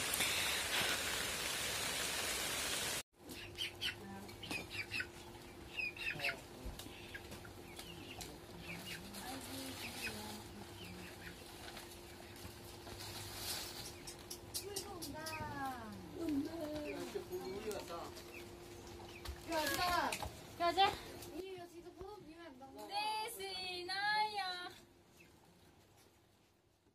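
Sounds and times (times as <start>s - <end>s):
heavy rain hissing: 0.0s - 3.0s
chickens clucking: 3.2s - 19.4s.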